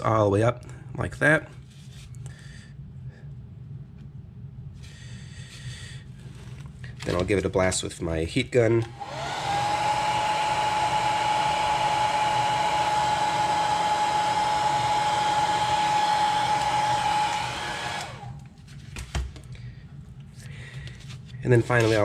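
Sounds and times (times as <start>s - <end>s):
heat gun blowing and whining: 8.8s - 18.5s.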